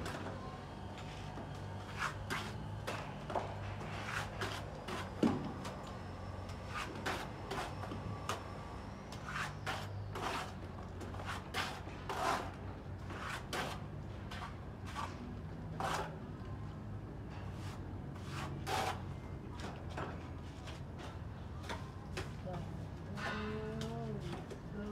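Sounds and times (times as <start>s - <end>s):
trowel scraping a wall: 1.0s - 5.8s, 6.5s - 16.2s, 17.4s - 19.8s.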